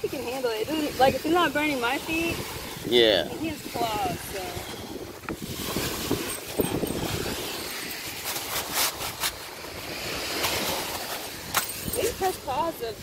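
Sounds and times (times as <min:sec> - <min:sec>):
ocean surf: 0:00.0 - 0:13.0
wind buffeting microphone: 0:00.0 - 0:13.0.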